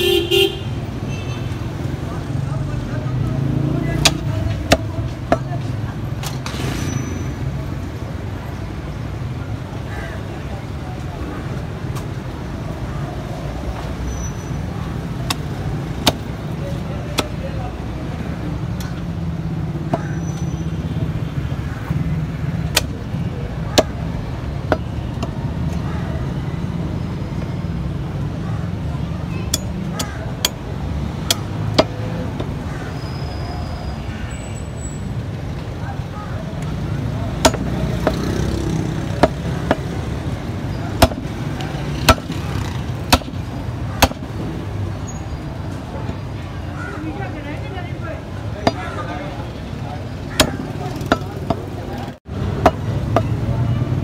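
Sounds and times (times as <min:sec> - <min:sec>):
street traffic rumble: 0:00.0 - 0:54.0
cleaver chopping on wooden block: 0:04.0 - 0:05.5, 0:15.2 - 0:16.3, 0:17.1 - 0:17.4, 0:22.7 - 0:23.0, 0:23.7 - 0:24.0, 0:24.7 - 0:25.4, 0:31.2 - 0:32.6, 0:37.4 - 0:40.0, 0:41.0 - 0:44.3, 0:50.3 - 0:51.7, 0:52.6 - 0:53.4.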